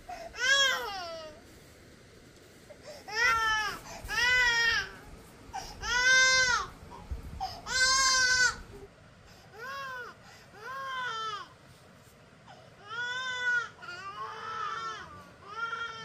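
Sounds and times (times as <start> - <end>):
baby crying: 12.8 - 16.0.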